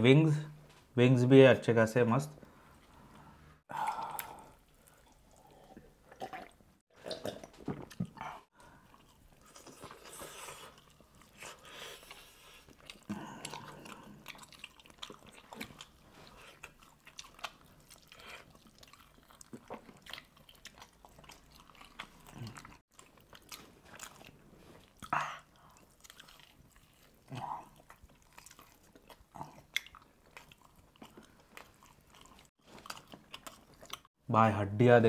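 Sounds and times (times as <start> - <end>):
wet chewing and biting: 7.2 - 34.1.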